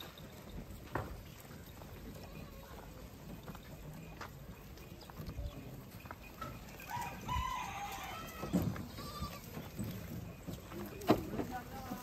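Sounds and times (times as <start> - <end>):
rooster crowing: 6.8 - 8.6.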